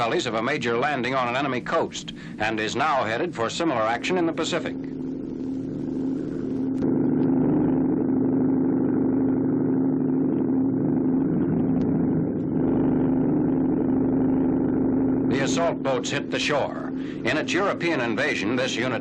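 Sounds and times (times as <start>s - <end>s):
boat engines droning: 12.6s - 19.0s.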